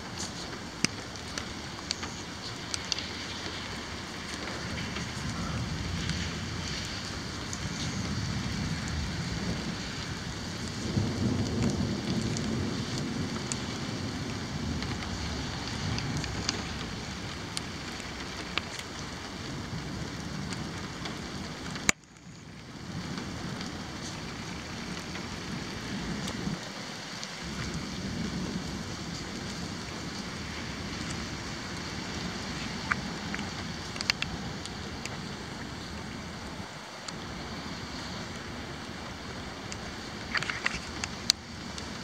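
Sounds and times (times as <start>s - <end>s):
low rumble of thunder: 0.0s - 42.0s
steady rain falling: 0.0s - 42.0s
sharp drip ticks: 0.2s - 22.4s, 29.0s - 35.8s, 39.7s - 42.0s.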